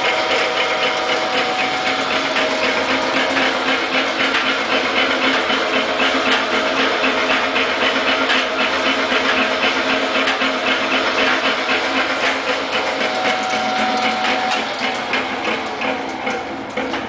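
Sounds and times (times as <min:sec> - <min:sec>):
meat grinder motor humming: 0:00.0 - 0:17.0
mixing paddles rattling: 0:00.0 - 0:17.0.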